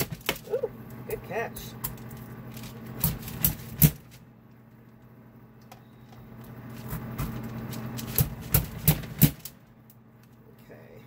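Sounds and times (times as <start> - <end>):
low steady hum: 0.0 - 11.0
vegetable chopper knocking and clacking: 8.0 - 9.5.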